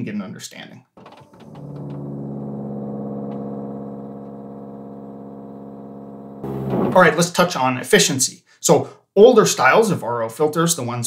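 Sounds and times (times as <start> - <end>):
pump motor humming: 1.0 - 7.0.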